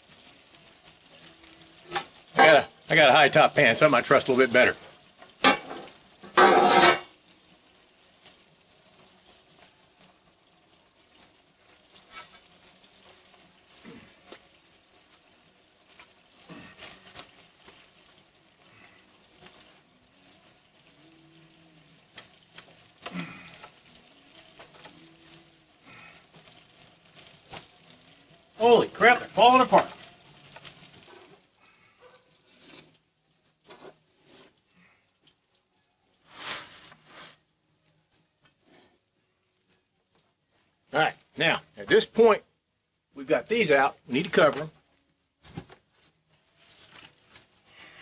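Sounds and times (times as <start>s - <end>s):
chicken sizzling in pans: 0.0s - 48.0s
metal spatula scraping pans: 1.8s - 3.0s, 5.3s - 7.2s, 12.0s - 12.6s
pans clattering: 1.9s - 2.7s, 5.2s - 7.2s.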